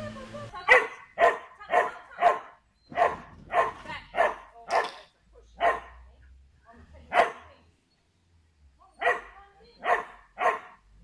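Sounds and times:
dog barking: 0.7 - 5.0, 5.6 - 6.0, 7.1 - 7.5, 9.0 - 10.8.

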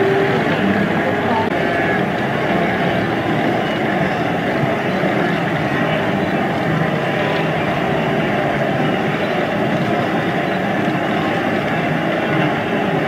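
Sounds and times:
herd of animals moving and calling: 0.0 - 13.0.

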